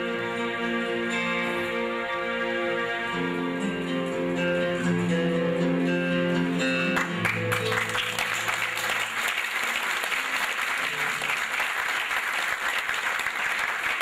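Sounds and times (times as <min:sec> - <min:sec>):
guitar music: 0:00.0 - 0:09.2
audience applauding: 0:07.0 - 0:14.0.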